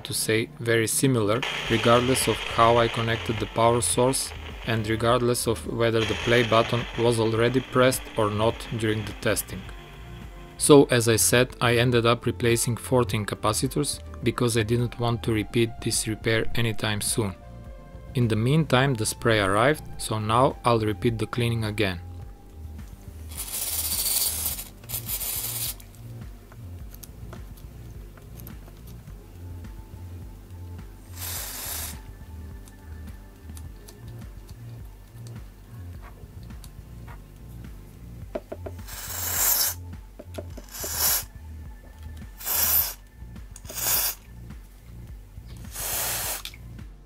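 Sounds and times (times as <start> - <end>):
aerosol spray hissing: 1.4 - 10.7, 23.3 - 25.8, 31.0 - 32.1, 38.7 - 39.8, 40.6 - 41.4, 42.3 - 43.0, 43.6 - 44.3, 45.7 - 46.6.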